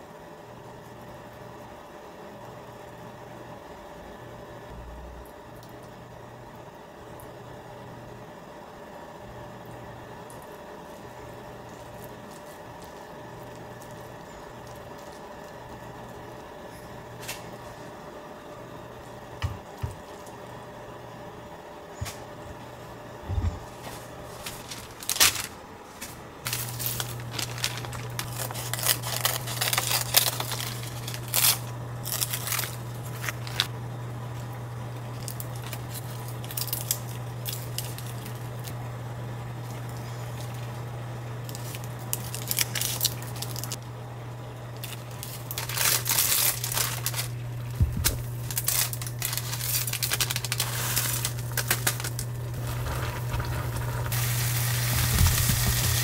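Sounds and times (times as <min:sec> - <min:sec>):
low hum: 0:04.4 - 0:06.8, 0:20.4 - 0:56.0
crinkling of dried sheets: 0:10.5 - 0:17.9, 0:23.6 - 0:33.7, 0:35.0 - 0:38.8, 0:41.4 - 0:43.8, 0:44.8 - 0:56.0
plastic packet tearing: 0:24.3 - 0:25.6, 0:26.5 - 0:33.7, 0:35.2 - 0:38.7, 0:41.5 - 0:43.8, 0:44.8 - 0:56.0.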